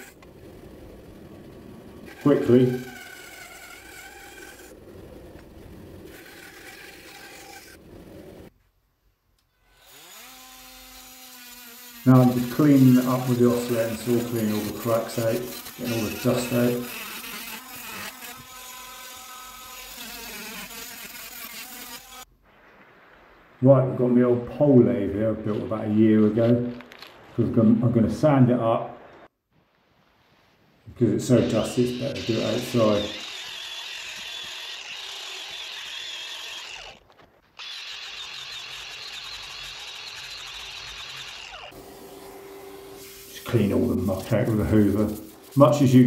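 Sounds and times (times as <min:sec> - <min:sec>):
angle grinder sanding wood: 0:00.0 - 0:00.2, 0:01.9 - 0:05.0, 0:05.9 - 0:07.8, 0:09.7 - 0:22.3, 0:31.2 - 0:37.0, 0:37.6 - 0:46.0
oscillating multi-tool cutting wood: 0:00.0 - 0:08.5, 0:09.6 - 0:22.3, 0:31.3 - 0:46.0.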